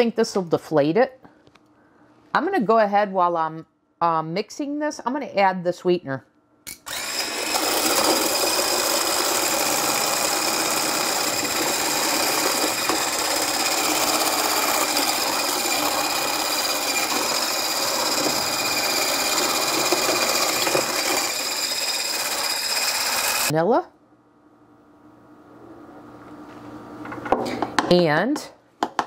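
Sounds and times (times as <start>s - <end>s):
hand blender whisking: 6.9s - 23.5s.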